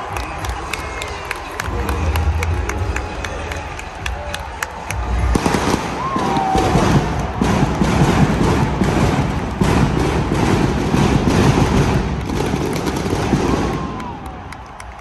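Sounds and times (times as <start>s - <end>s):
rapid crackling pyrotechnic pops: 5.1s - 14.9s.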